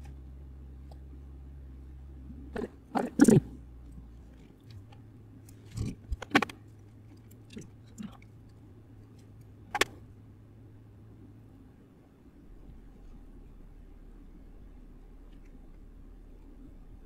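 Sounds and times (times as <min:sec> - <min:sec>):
low steady hum: 0:00.0 - 0:17.0
sharp clicks and knocks: 0:04.6 - 0:06.6, 0:09.2 - 0:10.0.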